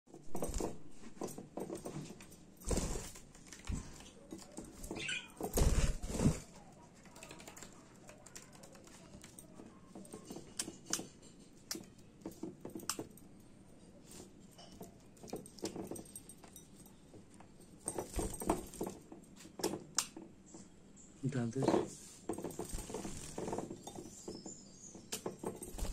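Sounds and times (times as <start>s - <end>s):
birds wing flapping and splashing: 22.5s - 23.8s.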